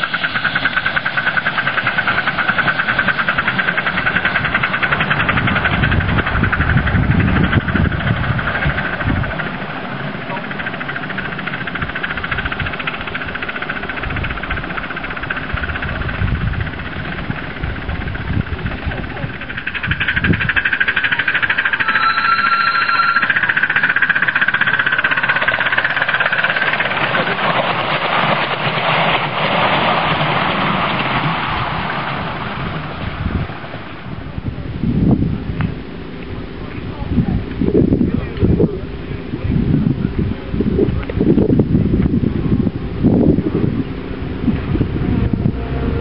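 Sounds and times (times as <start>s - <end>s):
steam exhaust beating rapidly: 0.0s - 46.0s
wheels rumbling on rails: 0.0s - 46.0s
short high whistle: 21.7s - 23.5s.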